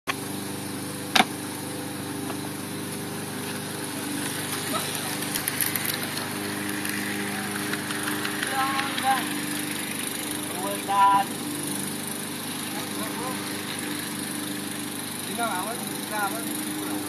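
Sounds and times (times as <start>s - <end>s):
lawn mower running: 0.1s - 17.0s
sharp knock: 1.1s - 1.3s
model train clicking on track: 5.2s - 9.4s.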